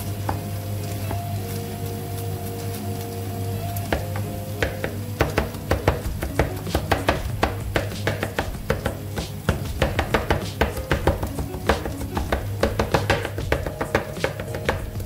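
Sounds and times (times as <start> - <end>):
knife chopping on wooden board: 3.9 - 15.0.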